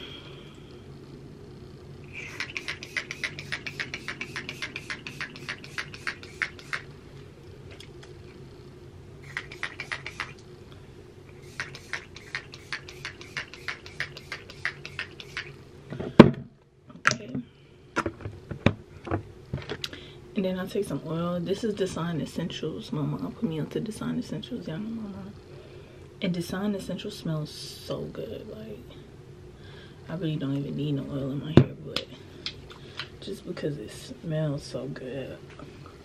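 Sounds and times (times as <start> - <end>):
faint steady hum: 0.0 - 36.0
spray bottle spritzing: 2.3 - 6.8, 9.2 - 10.4, 11.4 - 15.5.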